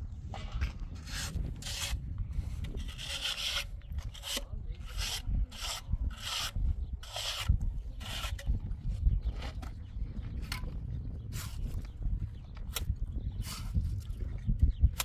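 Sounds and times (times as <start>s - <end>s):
trowel scraping cement: 0.4s - 8.7s, 11.2s - 11.8s, 12.7s - 14.2s.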